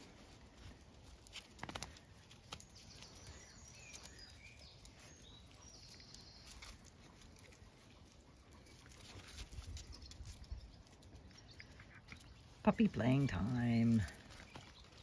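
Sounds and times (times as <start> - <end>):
puppies scuffling on paving: 0.0 - 15.0
birds chirping and whistling: 2.6 - 6.8.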